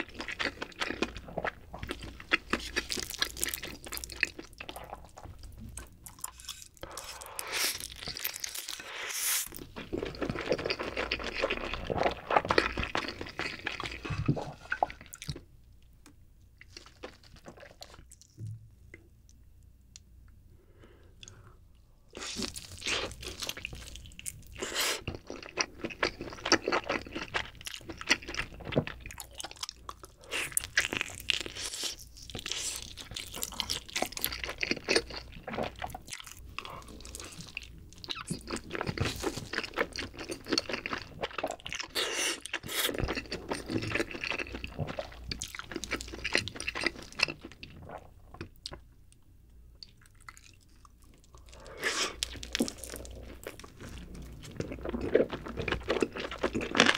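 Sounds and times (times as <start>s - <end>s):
wet sticky chewing: 49.8s - 56.9s.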